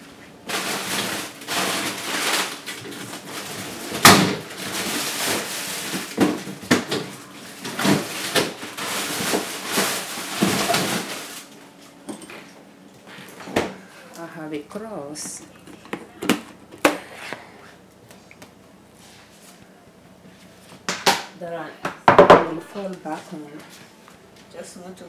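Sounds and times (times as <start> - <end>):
frozen packages rustling: 0.0 - 11.8, 13.1 - 18.4
containers knocking and clunking: 14.7 - 17.4, 21.9 - 22.6.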